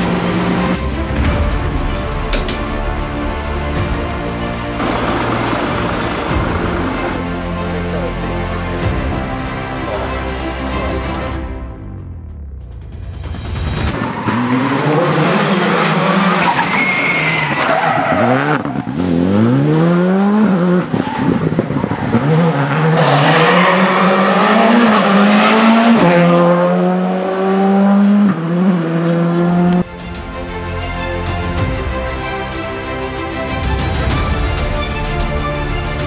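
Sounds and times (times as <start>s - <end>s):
rally car engine revving: 4.8s - 7.2s, 13.9s - 29.9s
tyre squeal: 16.4s - 18.6s.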